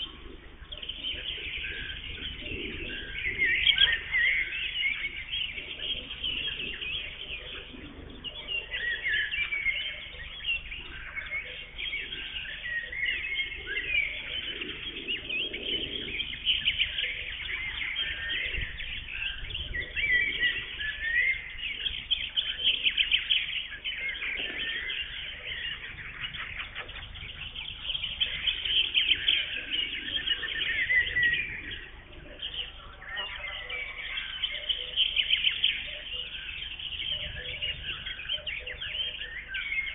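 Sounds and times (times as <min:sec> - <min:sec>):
songbirds singing in chorus: 0:00.0 - 0:39.9.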